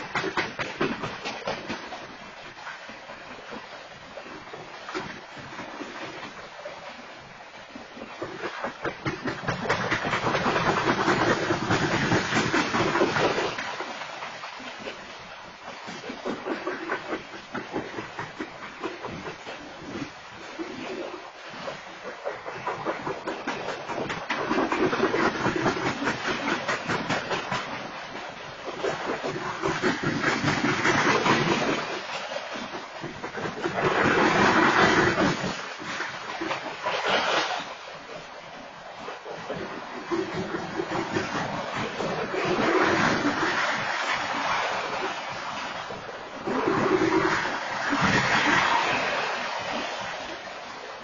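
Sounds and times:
train wheels clattering on rails: 0.0s - 2.0s, 8.2s - 13.8s, 22.3s - 27.8s.

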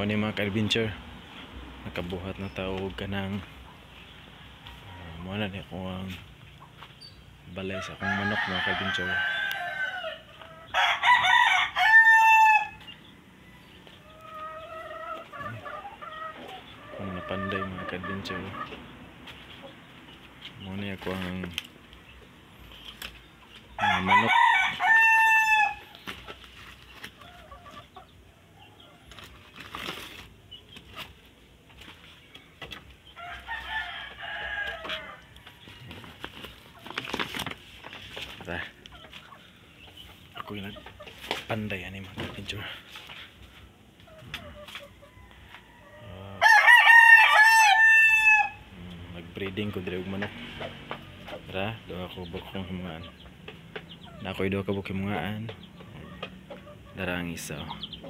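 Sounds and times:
chicken calls: 0.0s - 58.0s
drawn-out chicken call: 7.6s - 19.8s, 23.6s - 29.5s, 32.4s - 37.0s, 43.1s - 48.9s
rooster crowing: 7.7s - 12.8s, 23.8s - 25.9s, 33.2s - 35.9s, 45.0s - 48.7s.

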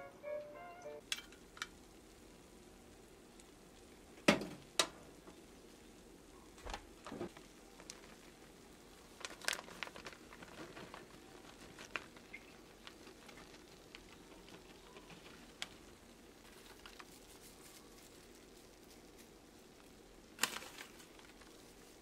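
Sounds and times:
cheese pattering onto rice: 6.4s - 22.0s.

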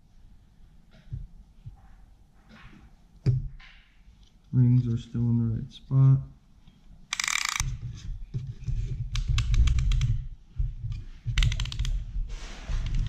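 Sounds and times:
ratchet pawl clicking: 7.1s - 7.6s.

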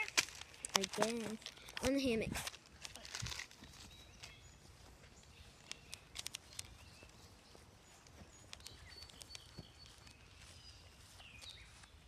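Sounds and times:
soft clicks: 8.0s - 10.2s.

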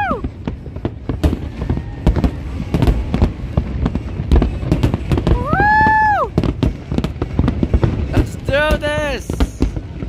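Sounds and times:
fireworks bangs and crackles: 0.0s - 10.0s.

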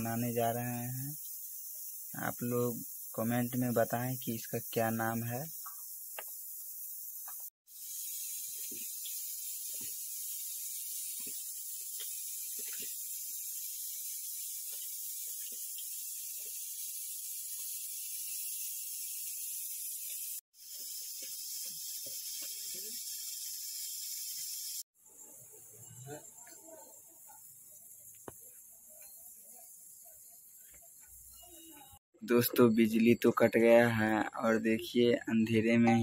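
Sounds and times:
steady high hiss: 0.0s - 24.8s.

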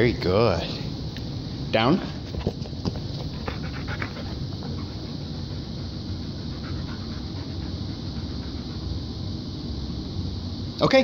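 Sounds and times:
room noise: 0.0s - 11.0s
dog panting: 2.2s - 9.3s.

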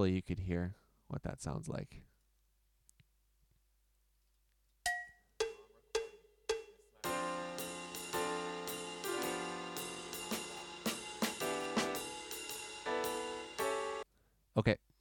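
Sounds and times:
jazz backing track with piano and drums: 7.0s - 14.0s.

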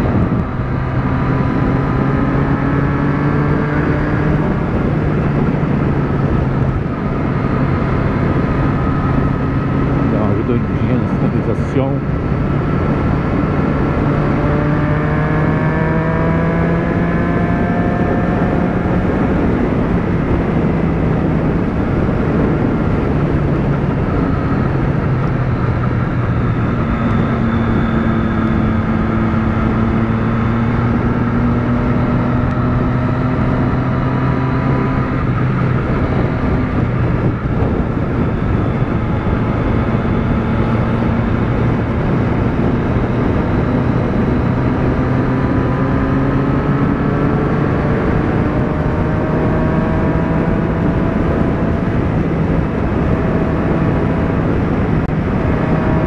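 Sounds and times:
motorcycle engine cruising: 0.0s - 56.0s
wind rushing: 0.0s - 56.0s.

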